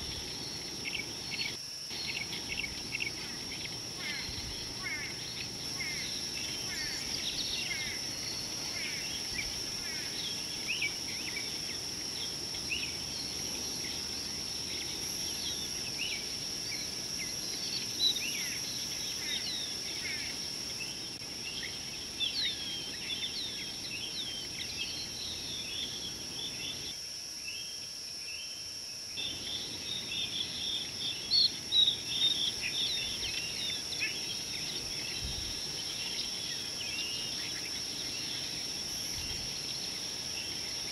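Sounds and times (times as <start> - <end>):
small birds chirping: 0.0 - 27.0, 29.2 - 40.9
high-pitched insect drone: 0.0 - 40.9.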